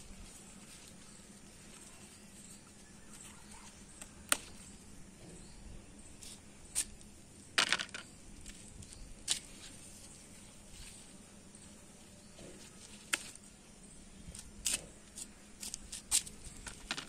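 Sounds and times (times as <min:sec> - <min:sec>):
leaves rustling under a hand: 0:00.0 - 0:04.7, 0:08.3 - 0:13.6.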